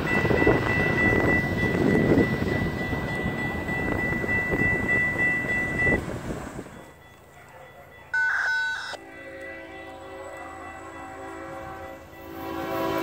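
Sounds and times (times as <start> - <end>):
crossing bell ringing: 0.0 - 13.0
train horn blast: 9.0 - 13.0.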